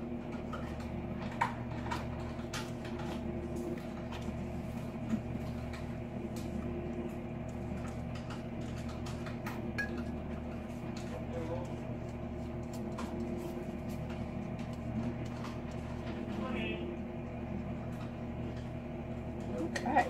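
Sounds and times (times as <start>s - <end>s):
steady appliance hum: 0.0s - 20.0s.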